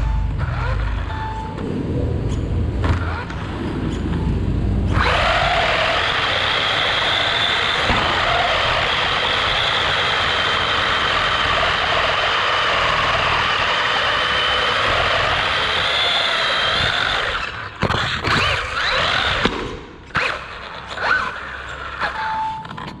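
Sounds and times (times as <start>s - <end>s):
toy car motor and gear whine: 4.9s - 19.5s, 20.2s - 22.9s.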